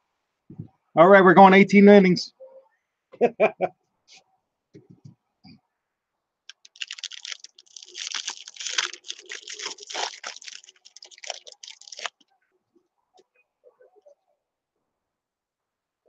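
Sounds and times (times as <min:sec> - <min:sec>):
foil wrapper tearing and crinkling: 0:06.5 - 0:12.2.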